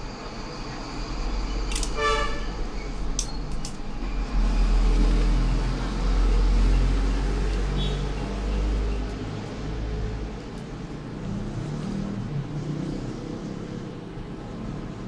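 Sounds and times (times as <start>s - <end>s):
background traffic rumble: 0.0s - 15.0s
sharp clicks: 1.7s - 2.0s
vehicle horn toot: 2.0s - 2.6s, 7.7s - 8.1s.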